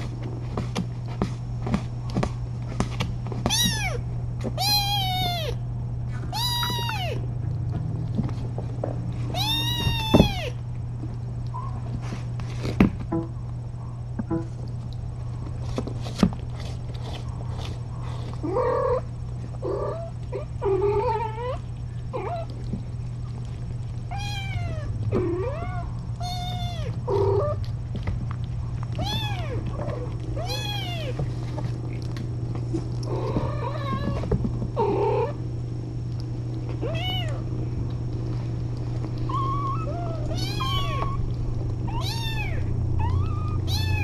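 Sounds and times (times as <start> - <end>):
steady low hum: 0.0 - 44.0
kittens meowing: 3.5 - 4.0, 4.6 - 5.6, 6.3 - 7.3, 9.3 - 10.6, 24.1 - 27.6, 29.0 - 31.3, 33.1 - 35.4, 36.7 - 37.5, 39.2 - 44.0.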